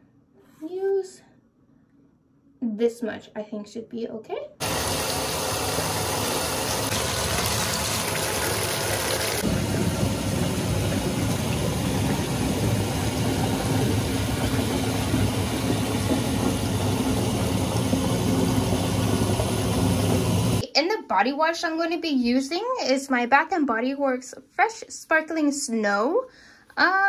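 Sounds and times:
tap running into bathtub: 4.7 - 20.4.

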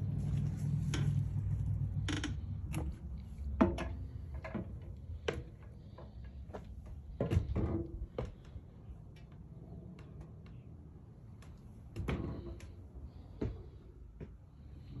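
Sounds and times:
low rumble: 0.0 - 5.2.

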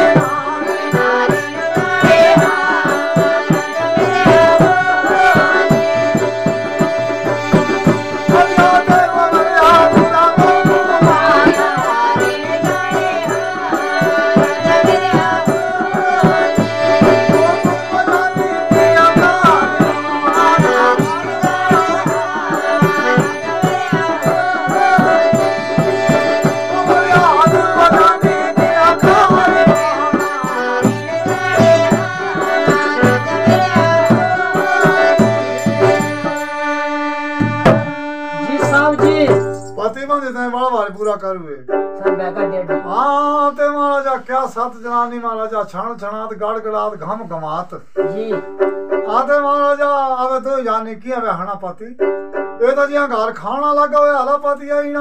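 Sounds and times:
hand drum beat: 0.0 - 36.5, 37.4 - 39.8
harmonium melody: 0.0 - 45.4.

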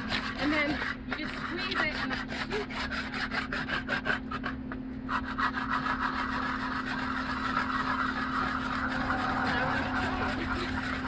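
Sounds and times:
can scraping on concrete: 0.0 - 11.0
steady low hum: 0.0 - 11.0.

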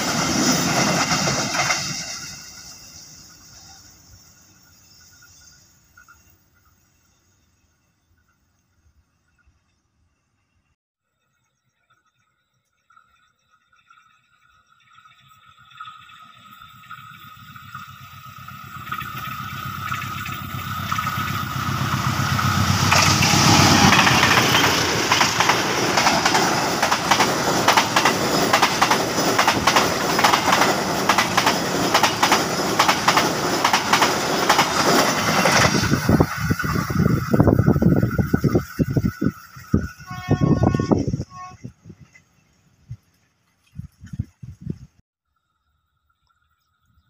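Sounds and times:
train rumble: 0.0 - 5.6, 17.1 - 43.3
wheels clattering over rail joints: 17.8 - 39.8.

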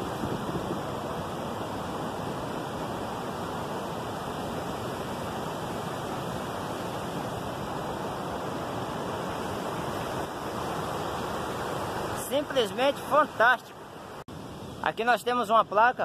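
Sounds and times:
river water rushing: 0.0 - 16.0.

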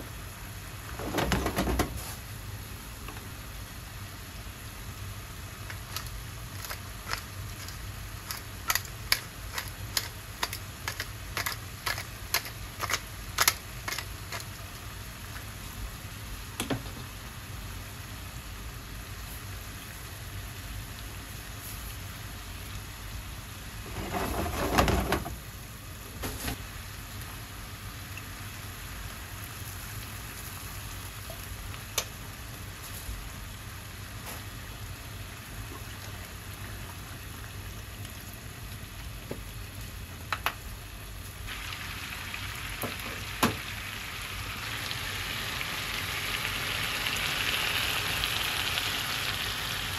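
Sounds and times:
sauce simmering hiss: 1.9 - 49.9
pepper mill grinding clicks: 5.7 - 14.5.

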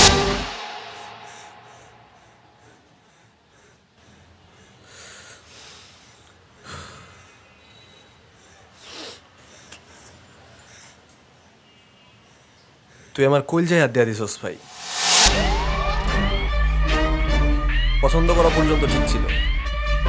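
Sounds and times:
man breathing and sniffing: 0.8 - 11.4.

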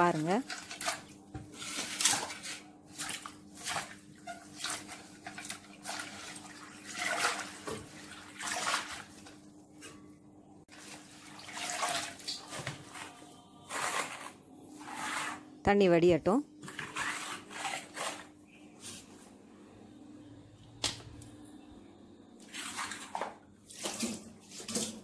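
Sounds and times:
water sloshing in steel bowl: 0.0 - 9.4, 10.7 - 13.0, 22.4 - 25.0.

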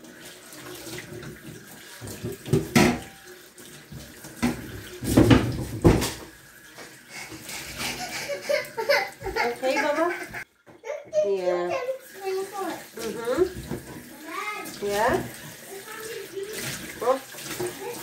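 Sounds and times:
sponge scrubbing sink: 0.0 - 18.0
tap water splashing into sink: 0.0 - 18.0
knocks in sink: 2.0 - 3.2, 4.4 - 6.3.

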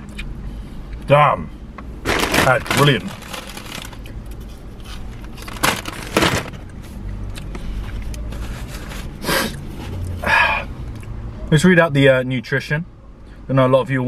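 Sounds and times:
paper bag crumpling: 2.0 - 4.1, 5.3 - 6.6.

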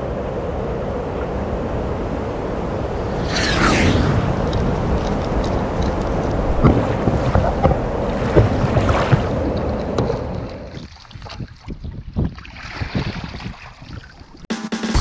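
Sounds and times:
wind on microphone: 0.0 - 14.4
water rushing and churning: 0.0 - 14.5
water drips and small splashes: 4.5 - 14.5.

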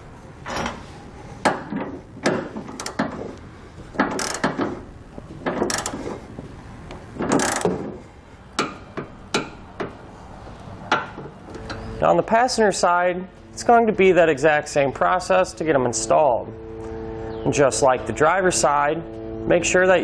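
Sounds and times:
torque wrench ratcheting: 2.7 - 3.0, 4.0 - 4.7, 5.5 - 6.2, 7.3 - 7.8.

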